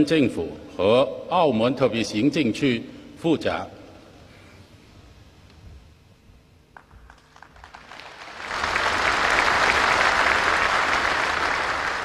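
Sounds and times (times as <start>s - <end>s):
audience applause: 6.8s - 12.0s.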